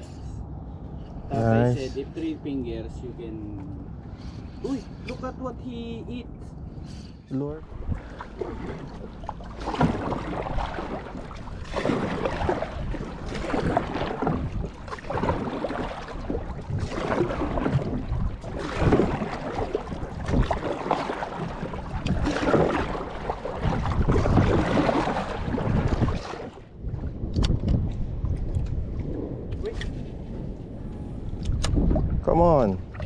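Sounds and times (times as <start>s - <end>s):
wind buffeting microphone: 0.0s - 33.0s
sea water splashing around boat: 6.6s - 33.0s.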